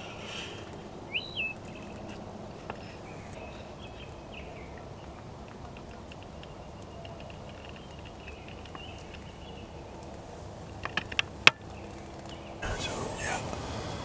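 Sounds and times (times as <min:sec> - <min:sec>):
rustle: 0:00.0 - 0:14.0.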